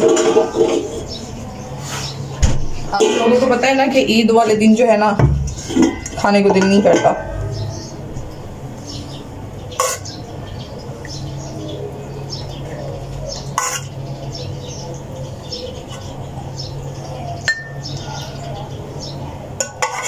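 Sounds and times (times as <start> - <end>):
steady low hum: 0.8 - 19.8
metal ladle clinking on cookware: 5.5 - 7.3, 17.5 - 17.8, 19.6 - 20.0.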